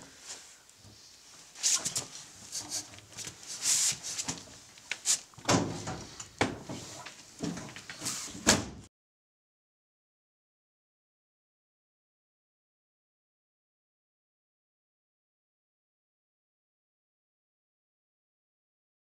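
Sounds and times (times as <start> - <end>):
rustling scuffles: 0.1 - 8.4.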